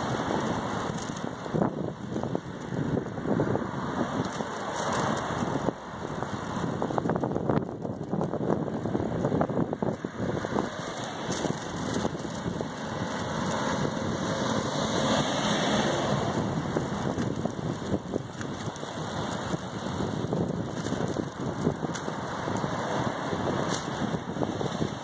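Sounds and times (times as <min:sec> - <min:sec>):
bus passing: 0:00.0 - 0:25.0
road traffic: 0:00.0 - 0:25.0
wind on microphone: 0:00.0 - 0:25.0.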